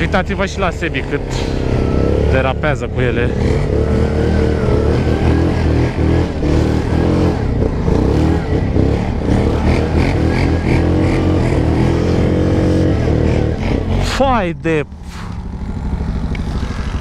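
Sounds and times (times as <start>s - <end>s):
atv engine revving: 0.0s - 17.0s.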